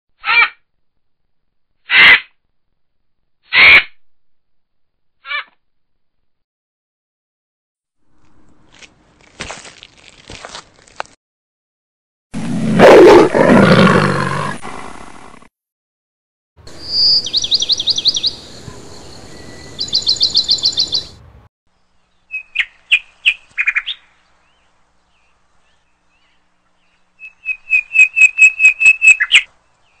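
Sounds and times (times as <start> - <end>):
big cat roaring: 12.4 - 15.4
bird trilling and chirping: 16.7 - 21.2, 26.2 - 29.5.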